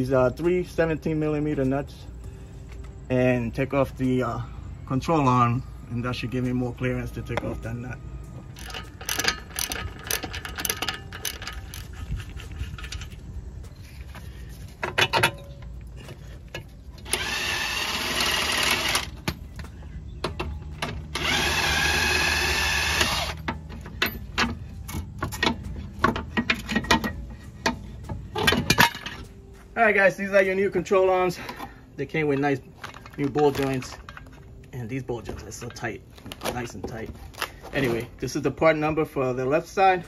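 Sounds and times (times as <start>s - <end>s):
hand ratchet clicking: 8.6s - 13.2s
power impact wrench running: 17.0s - 19.2s, 21.1s - 23.5s.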